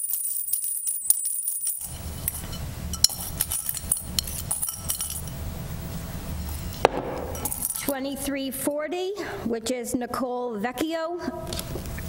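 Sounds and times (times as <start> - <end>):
metal tags clinking in plastic cups: 0.0 - 5.4, 6.4 - 8.0.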